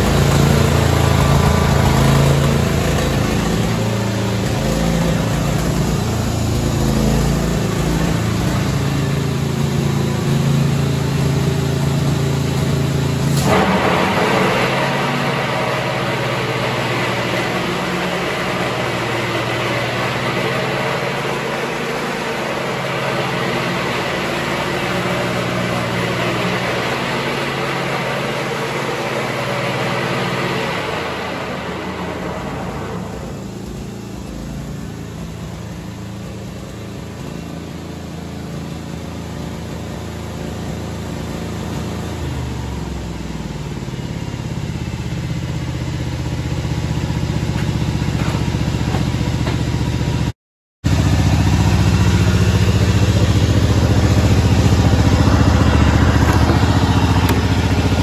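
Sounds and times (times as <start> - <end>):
lawn tractor engine running: 0.0 - 58.0.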